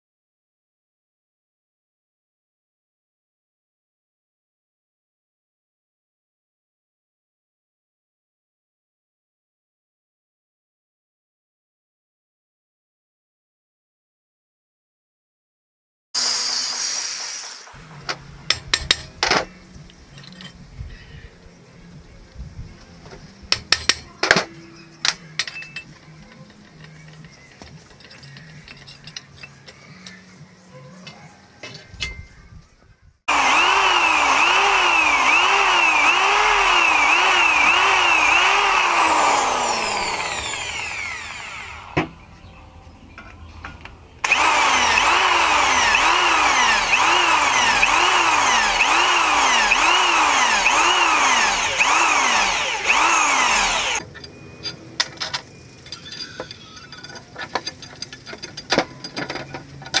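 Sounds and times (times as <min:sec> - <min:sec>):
electric drill boring through steel: 0:16.2 - 0:19.5, 0:33.3 - 0:42.1, 0:44.2 - 0:54.0.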